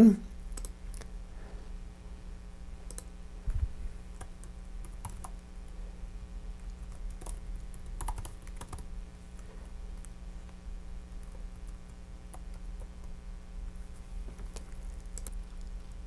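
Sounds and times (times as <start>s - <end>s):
computer keyboard typing: 0.5s - 0.8s, 2.8s - 3.1s, 4.1s - 5.4s, 6.7s - 8.9s, 11.2s - 13.2s, 14.5s - 15.7s.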